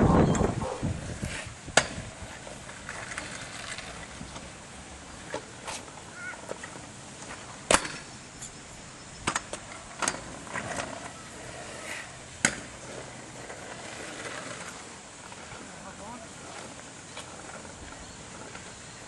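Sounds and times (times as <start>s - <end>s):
kick scooter clacking on asphalt: 0.3s - 4.6s, 9.2s - 19.0s.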